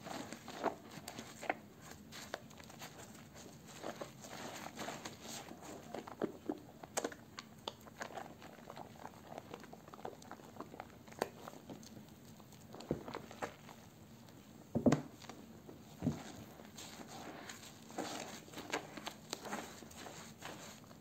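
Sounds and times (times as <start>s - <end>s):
wet soap squelching between hands: 15.2s - 21.0s.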